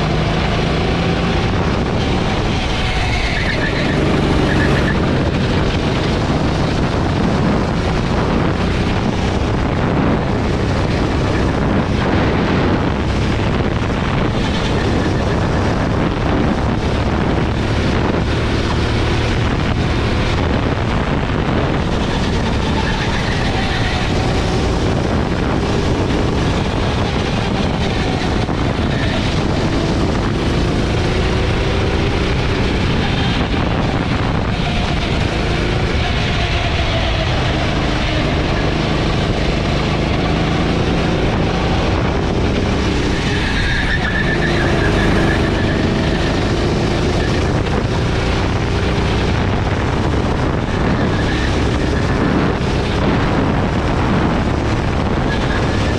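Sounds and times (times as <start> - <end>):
go-kart engine running hard: 0.0 - 55.9
wind buffeting microphone: 0.0 - 55.9.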